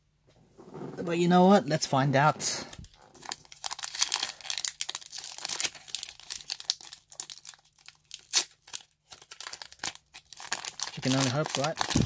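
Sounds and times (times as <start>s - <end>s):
foil wrapper crinkling and tearing: 2.8s - 12.0s.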